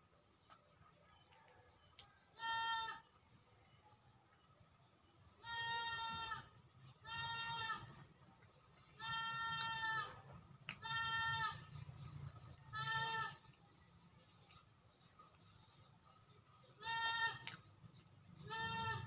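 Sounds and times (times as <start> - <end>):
farm animal bleating: 2.4 - 3.1, 5.4 - 8.0, 8.9 - 11.8, 12.6 - 13.6, 16.8 - 17.6, 18.4 - 19.0.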